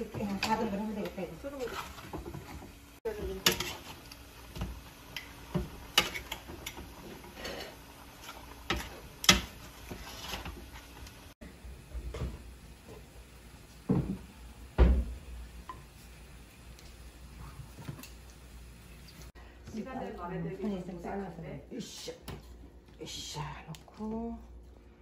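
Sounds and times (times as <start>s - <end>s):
utensils clicking against pan: 3.2s - 4.2s.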